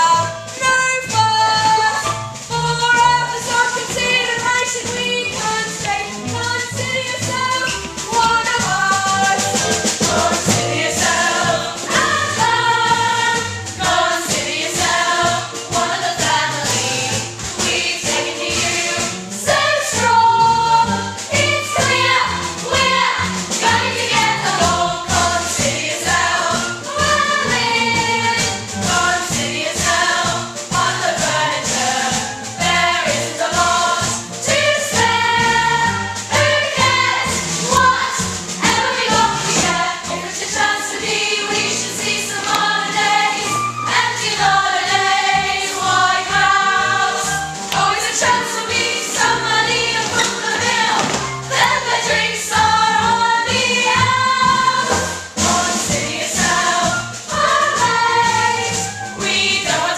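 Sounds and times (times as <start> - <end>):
instrumental accompaniment: 0.0 - 59.9
jingling percussion beat: 0.0 - 59.9
voices singing: 0.0 - 59.9.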